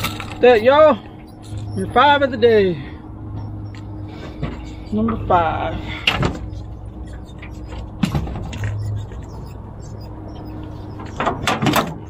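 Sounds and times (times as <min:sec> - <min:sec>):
steady low hum: 0:00.0 - 0:12.0
knocks and clatters on boat deck: 0:11.1 - 0:12.0.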